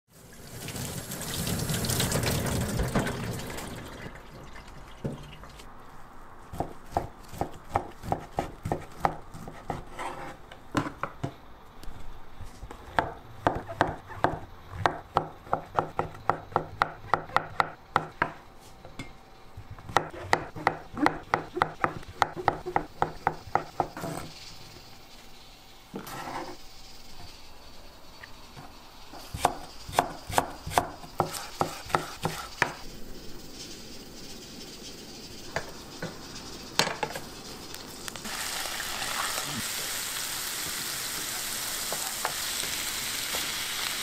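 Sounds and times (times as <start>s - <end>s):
water running from tap: 0.1s - 5.6s, 38.2s - 41.6s
knife chopping on cutting board: 6.5s - 11.1s, 13.0s - 18.4s, 19.8s - 24.3s, 29.3s - 32.8s.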